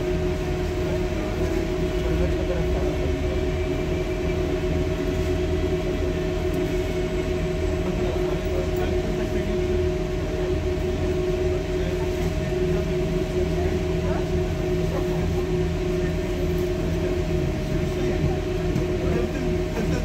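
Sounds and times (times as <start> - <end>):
bus engine rumble and whine: 0.0 - 20.0.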